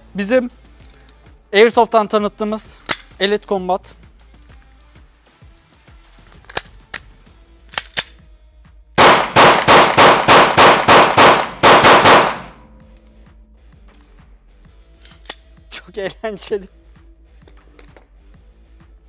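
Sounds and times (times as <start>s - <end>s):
pistol handling clicks: 2.8s - 3.2s, 6.3s - 8.2s, 9.0s - 12.6s, 14.8s - 15.6s
pistol shots echoing indoors: 9.0s - 12.7s.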